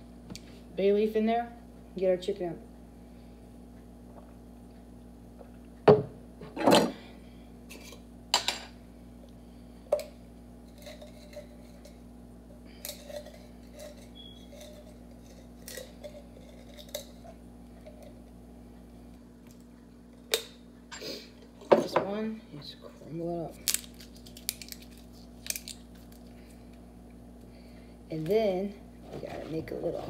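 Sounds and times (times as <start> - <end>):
steady low hum: 0.0 - 30.0
dishes knocking and clinking: 5.8 - 7.0.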